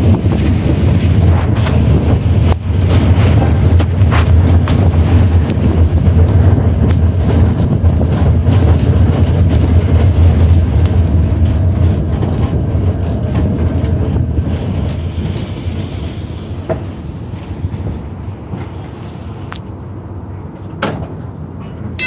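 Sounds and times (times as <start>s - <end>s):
streetcar rumbling on rails: 0.0s - 22.0s.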